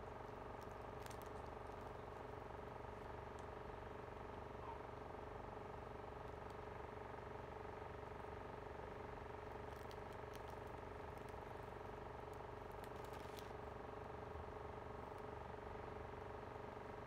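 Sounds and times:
faint light crackles: 0.0s - 3.9s, 9.0s - 14.0s.

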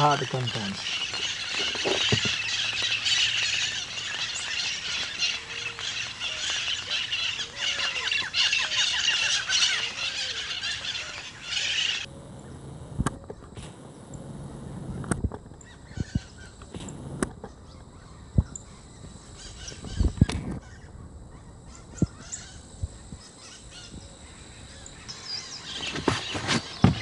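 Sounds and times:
rain pattering: 0.0s - 7.6s
bird singing: 0.0s - 13.5s, 15.6s - 27.0s.

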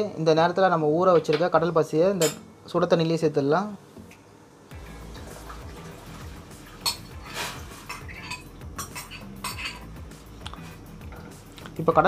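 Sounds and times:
spoon clinking on glass: 6.8s - 7.2s, 7.8s - 9.9s
metal spoon scraping glass bowl: 6.8s - 9.9s.

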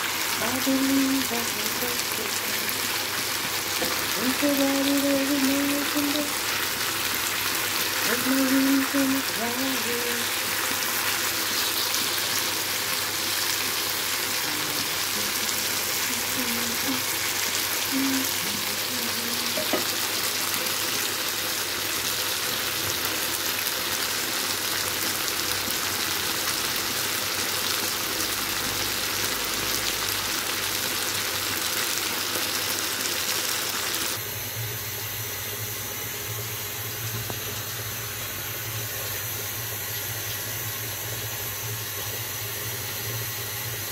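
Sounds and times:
chicken sizzling and bubbling: 0.0s - 43.9s.

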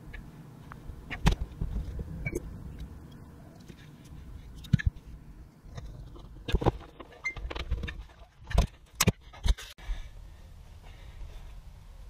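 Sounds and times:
clicks and knocks handling wiring: 5.7s - 9.7s.

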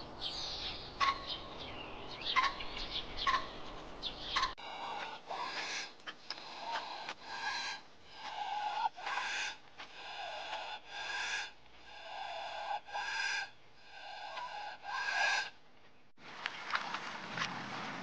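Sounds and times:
capybaras calling: 3.2s - 15.6s.

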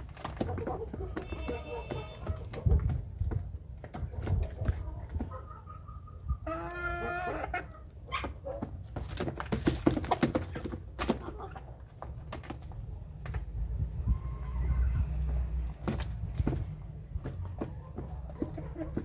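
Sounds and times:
chicken clucks: 0.0s - 12.9s, 13.9s - 19.0s
birds pecking feed from a dish: 0.0s - 13.6s, 15.1s - 19.0s
chick calling: 0.5s - 2.9s, 4.2s - 8.5s.

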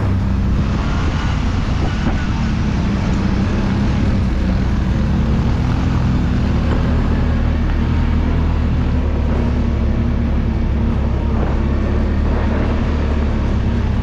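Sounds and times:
atv engine running: 0.0s - 14.0s.

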